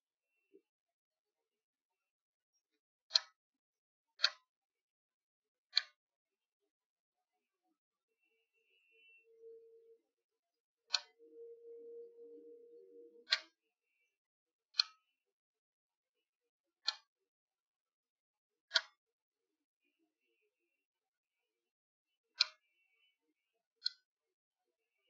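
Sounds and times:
faint steady tone: 7.6 - 14.2.

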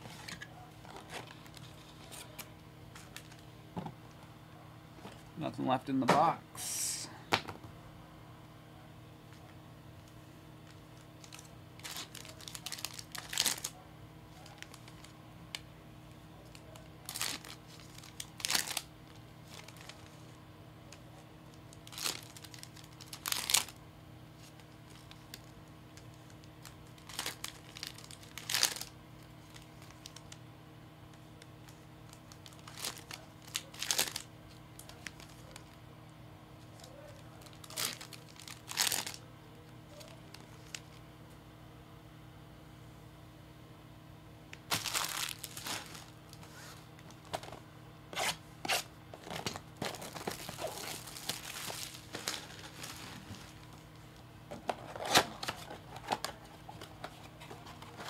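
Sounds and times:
foil packs tearing and crinkling: 11.2 - 13.8, 16.5 - 20.1, 21.7 - 23.8, 24.5 - 30.4, 32.1 - 35.8, 37.4 - 39.2, 44.7 - 47.5, 48.1 - 53.8, 54.6 - 56.9.

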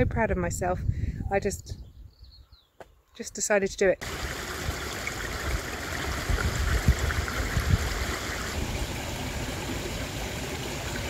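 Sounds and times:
stream babbling over stones: 4.0 - 11.0.

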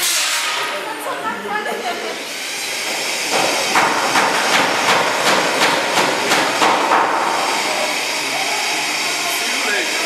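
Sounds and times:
sharp knocks: 2.9 - 7.4.

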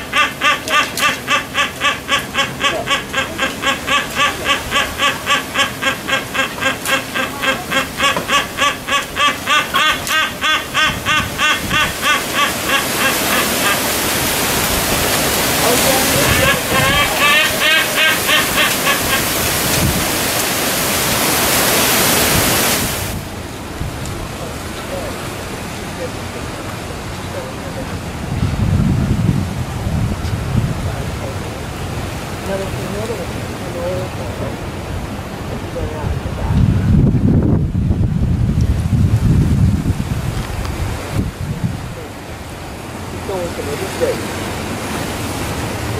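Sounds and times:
hornbill calling: 0.0 - 14.6, 15.2 - 19.5
steady rushing noise: 0.0 - 45.9.

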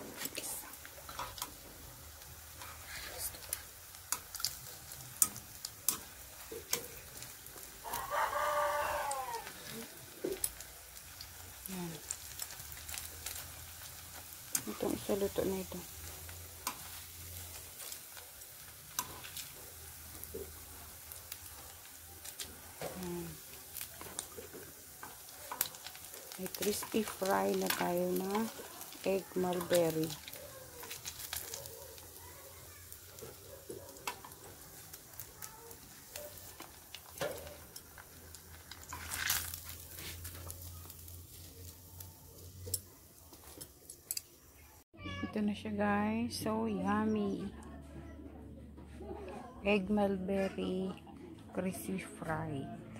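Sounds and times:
fritters sizzling in oil: 0.0 - 44.8.

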